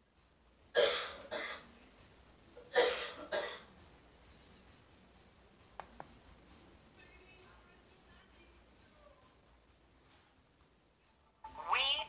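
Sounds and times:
person coughing: 2.7 - 3.7.

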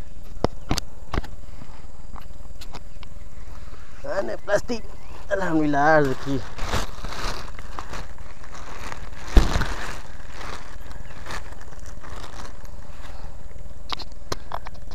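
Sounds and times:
plastic bag crinkling: 5.3 - 13.2.

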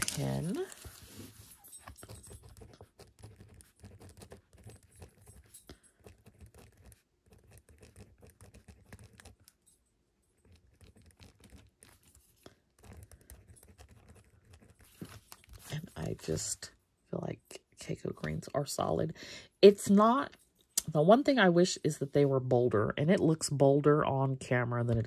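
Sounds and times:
pen scratching on paper: 0.8 - 9.6, 10.4 - 15.9.

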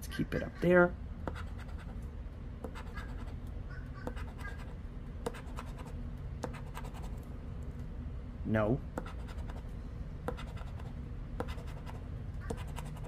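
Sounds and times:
chip scraping scratch-off ticket: 2.7 - 3.4, 4.0 - 5.9, 12.5 - 13.0.

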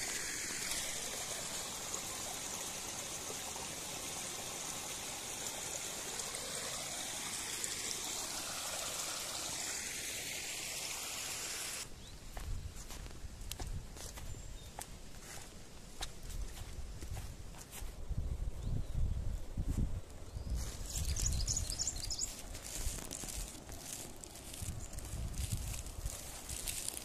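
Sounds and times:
stream splashing over rocks: 0.0 - 11.8, 21.0 - 27.0.

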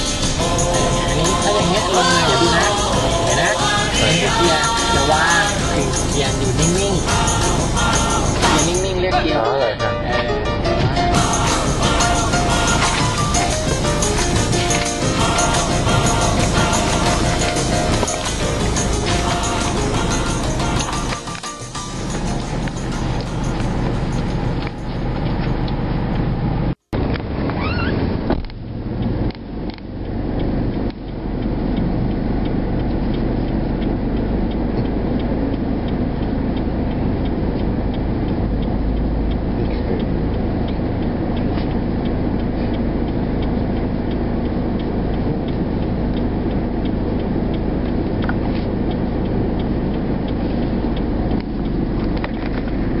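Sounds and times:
street traffic: 0.0 - 53.0
vehicle engine running: 0.0 - 53.0.

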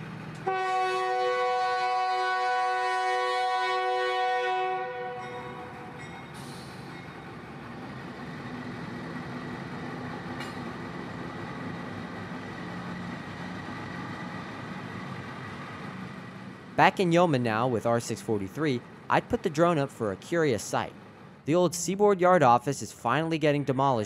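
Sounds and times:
diesel locomotives rumbling: 0.0 - 24.0
locomotive horn chord: 0.4 - 6.0.

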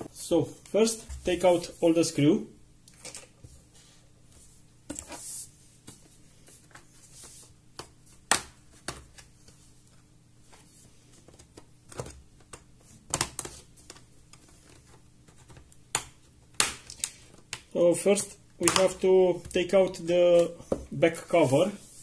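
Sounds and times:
sharp plastic clips clicking: 18.6 - 19.0.

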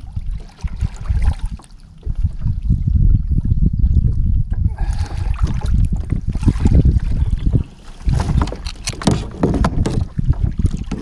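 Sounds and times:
water splashing around kayak: 0.0 - 11.0
wind rumble on microphone: 0.0 - 11.0
knocks on kayak side: 8.1 - 10.1.

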